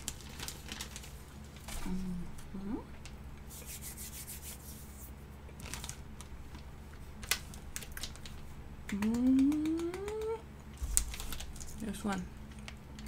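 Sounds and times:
plastic bags crinkling: 0.0s - 2.0s, 5.6s - 8.5s, 10.8s - 12.2s.

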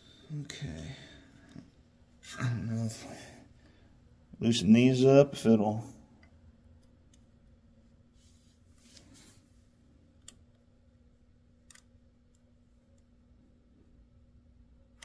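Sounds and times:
faint steady hum: 0.0s - 15.0s
soft rustle: 8.0s - 9.8s.

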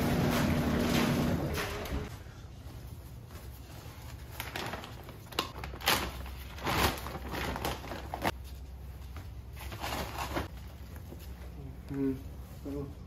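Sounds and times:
plastic bag crinkling and tearing: 4.2s - 8.4s.

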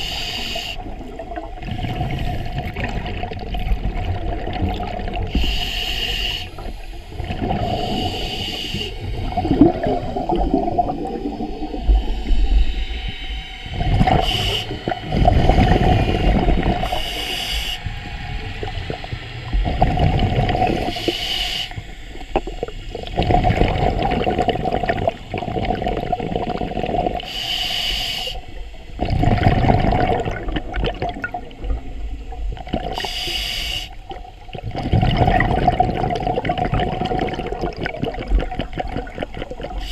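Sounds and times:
regulator inhalation hiss: 0.0s - 0.9s, 5.3s - 9.5s, 14.1s - 18.0s, 20.7s - 22.9s, 27.2s - 28.9s, 32.9s - 34.2s
steady hum: 0.0s - 39.9s
bubbling exhalations: 0.8s - 5.6s, 6.6s - 12.2s, 13.8s - 17.3s, 18.6s - 21.1s, 22.2s - 27.3s, 29.0s - 33.1s, 34.1s - 39.9s.

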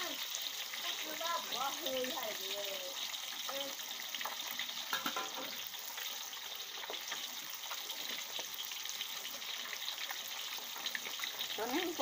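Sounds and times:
fish sizzling in hot oil: 0.0s - 12.0s
metal spatula scraping wok: 4.9s - 5.6s.

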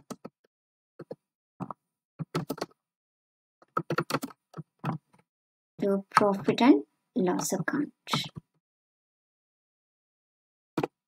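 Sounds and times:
computer keyboard typing: 1.0s - 2.8s, 3.6s - 5.1s.

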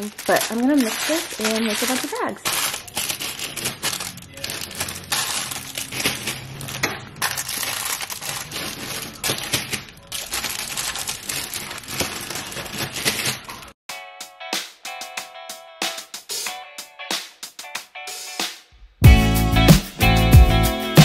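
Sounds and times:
candy wrappers crinkling: 0.0s - 13.8s
plastic bags rustling: 0.0s - 13.8s.

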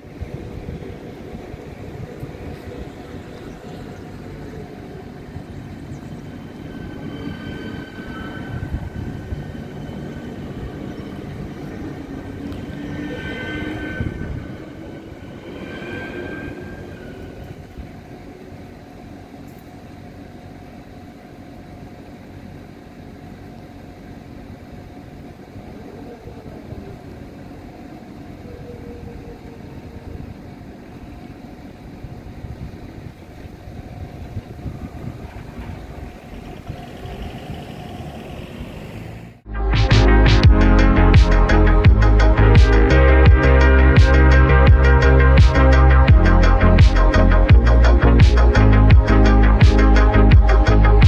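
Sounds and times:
high steady tones: 0.0s - 19.4s
train rumbling past: 0.0s - 51.0s.

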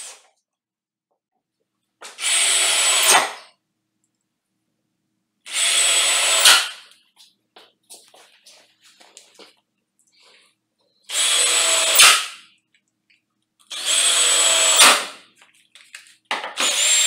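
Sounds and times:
cordless drill whining: 2.0s - 3.4s, 5.5s - 6.8s, 11.1s - 12.4s, 13.7s - 15.2s, 16.6s - 17.0s.

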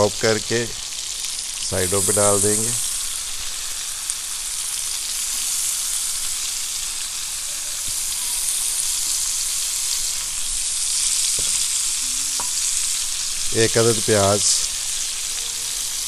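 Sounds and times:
fish frying in oil sizzling: 0.0s - 16.0s.

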